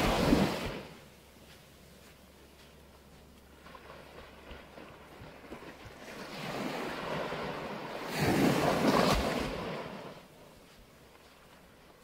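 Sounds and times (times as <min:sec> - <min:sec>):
small wave breaking on shore: 0:00.0 - 0:01.0, 0:03.6 - 0:10.3.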